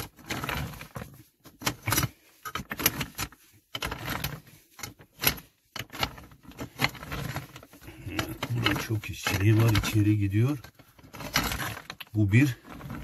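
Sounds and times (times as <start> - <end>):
metal rod scraping among stones: 0.0 - 13.0
stones clinking and rattling: 0.0 - 13.0.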